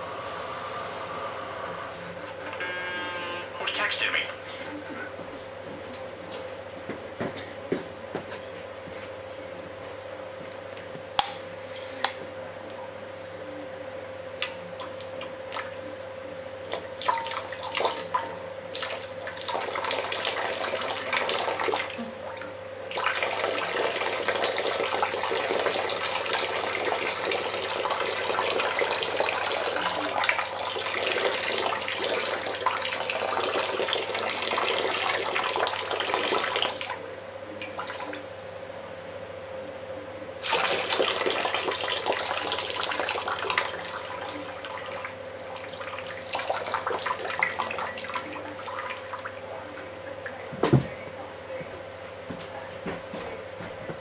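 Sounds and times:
steady hum: 0.0 - 54.0
water running and splashing: 16.7 - 37.0, 40.4 - 49.6.

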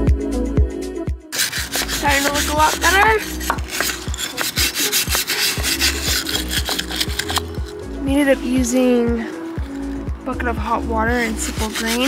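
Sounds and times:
background music with steady beat: 0.0 - 12.0
rag scrubbing metal: 1.4 - 7.8, 11.1 - 12.0.

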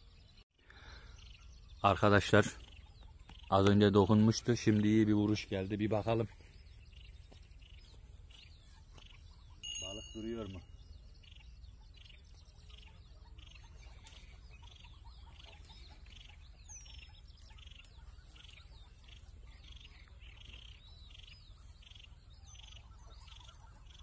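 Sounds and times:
whistled bird calls: 8.5 - 24.0.

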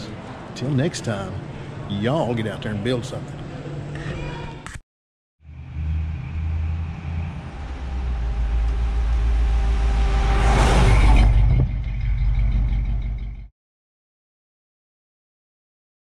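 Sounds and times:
pickup truck engine passing: 5.5 - 13.0.

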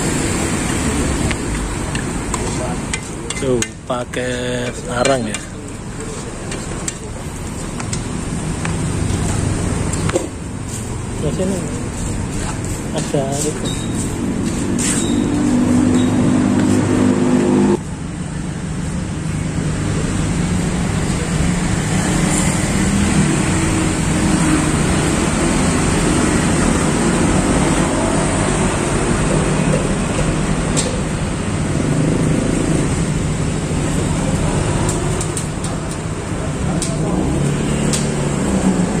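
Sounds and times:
road traffic passing: 0.0 - 39.0
loud engine hum: 8.1 - 39.0.

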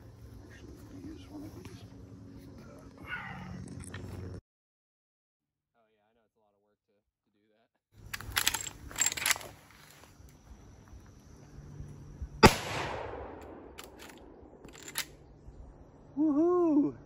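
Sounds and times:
rifle shot: 12.4 - 15.0.

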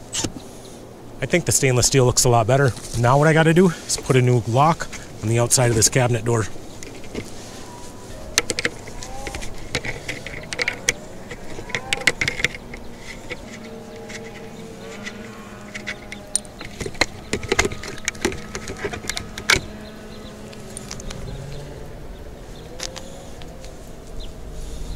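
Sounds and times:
sharp metallic clicks: 8.3 - 21.7.

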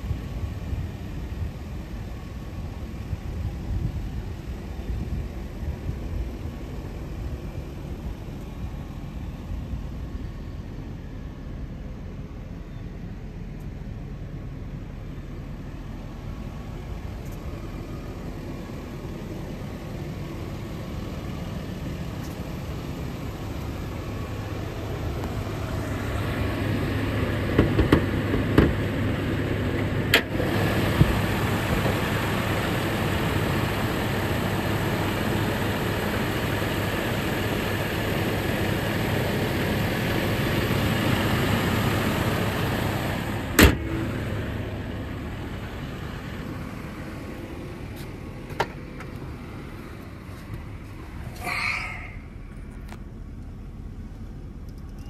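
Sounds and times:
car engine idling: 0.0 - 55.0.

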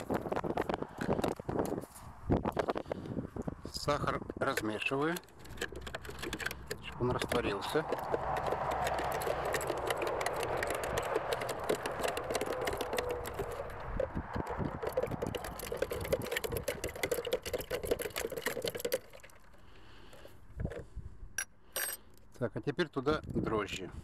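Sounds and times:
stirrer clicking against container: 4.4 - 20.3.

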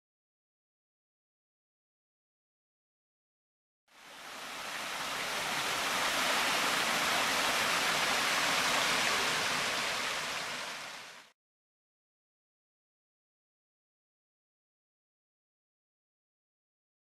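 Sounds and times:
waterfall rushing: 3.9 - 11.3.

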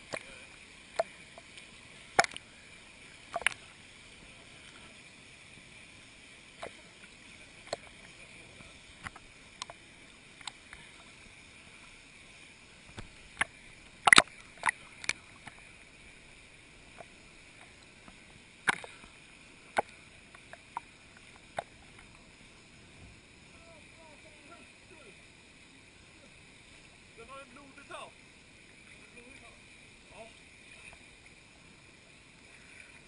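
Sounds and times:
water slapping and splashing: 0.0 - 4.8, 12.9 - 15.8, 16.8 - 22.2
hiss of moving water: 0.0 - 33.0.

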